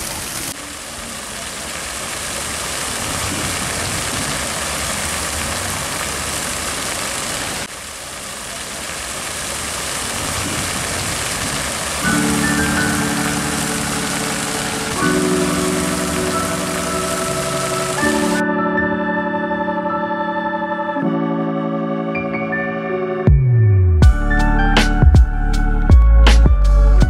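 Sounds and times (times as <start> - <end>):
fountain water splashing: 0.0 - 18.8.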